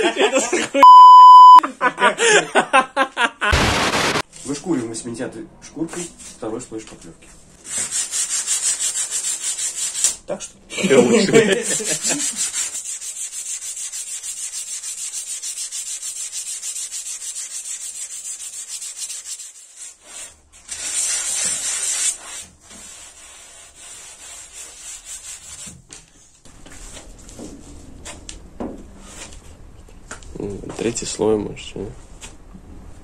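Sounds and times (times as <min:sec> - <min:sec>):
sandpaper sanding: 0:07.6 - 0:10.2, 0:11.5 - 0:25.8.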